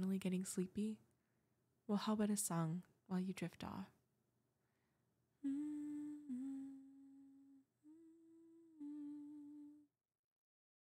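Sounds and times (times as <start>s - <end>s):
woman humming: 5.4s - 9.9s.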